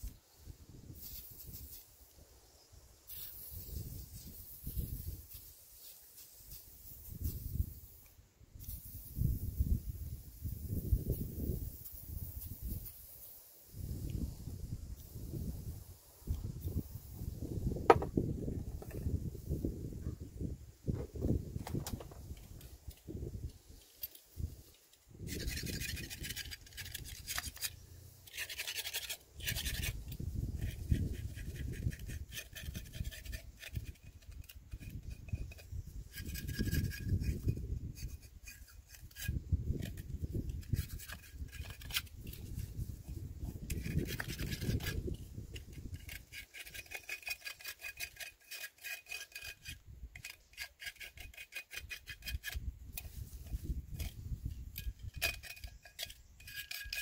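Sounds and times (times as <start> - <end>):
hand scraping rusted metal: 17.8 - 19.3, 20.9 - 57.0.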